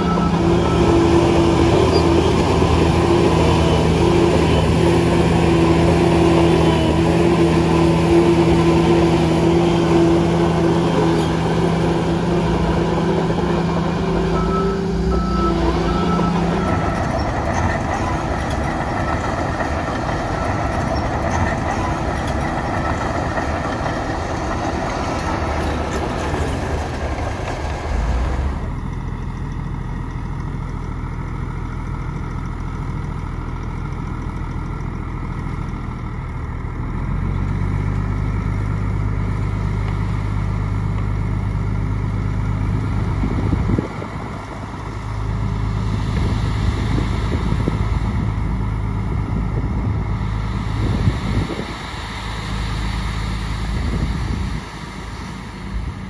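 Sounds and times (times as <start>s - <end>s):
reversing alarm beeping: 0.0s - 5.4s, 12.6s - 18.9s
heavy diesel engines working: 0.0s - 56.0s.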